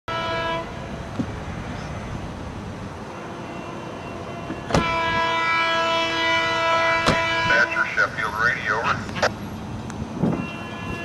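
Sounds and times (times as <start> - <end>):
locomotive air horn: 0.1 - 1.0, 3.0 - 8.1, 10.3 - 11.0.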